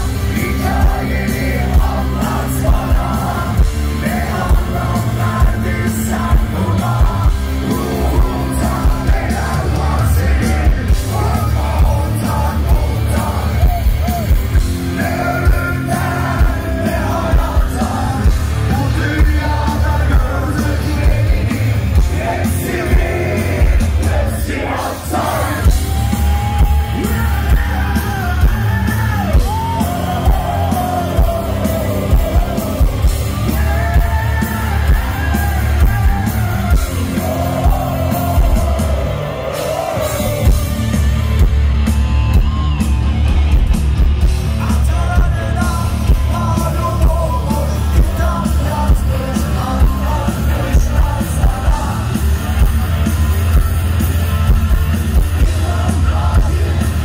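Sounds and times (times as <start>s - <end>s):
people yelling: 0.0s - 19.1s, 22.1s - 47.6s
heavy metal band playing live: 0.0s - 57.0s.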